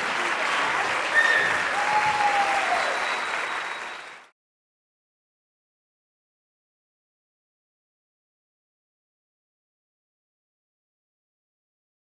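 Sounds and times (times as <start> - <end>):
audience applauding: 0.0 - 4.4
person cheering: 1.2 - 3.0.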